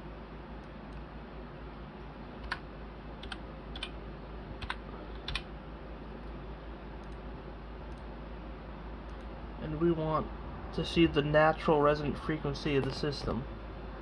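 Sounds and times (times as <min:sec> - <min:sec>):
steady low hum: 0:00.0 - 0:14.0
keyboard keystrokes clicking: 0:03.2 - 0:03.9, 0:04.6 - 0:05.5.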